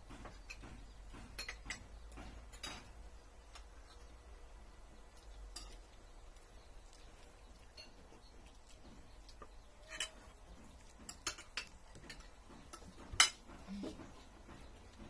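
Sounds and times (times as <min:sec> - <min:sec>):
cutlery clinking on plates: 0:00.2 - 0:03.0, 0:09.8 - 0:14.1.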